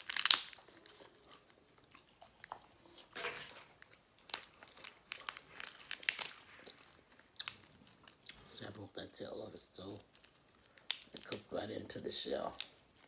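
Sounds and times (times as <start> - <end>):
sharp clicks and cracks: 0.0 - 1.0, 3.2 - 8.4, 9.8 - 11.6, 12.3 - 12.8
loud eating crunch: 0.0 - 8.6.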